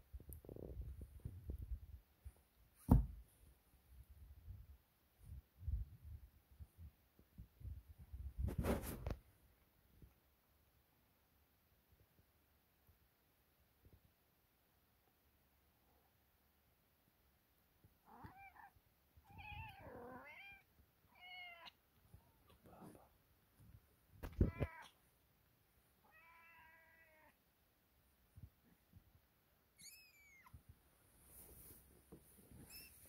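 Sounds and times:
dull bump: 2.8s - 3.3s.

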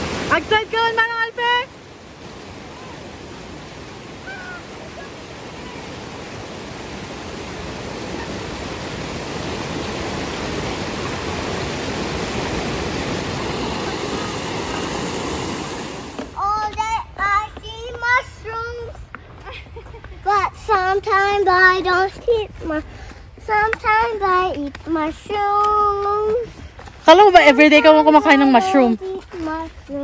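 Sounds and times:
creek rushing over boulders: 0.0s - 19.5s
child singing: 20.2s - 22.8s, 23.4s - 26.5s, 28.9s - 30.0s.

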